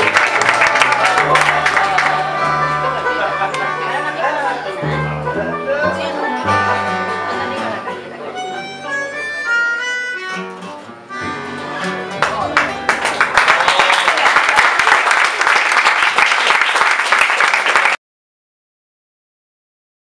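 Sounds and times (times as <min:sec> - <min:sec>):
audience applause: 0:00.0 - 0:04.3, 0:12.2 - 0:18.0
harmonica: 0:00.0 - 0:12.9
guitar: 0:00.0 - 0:14.5.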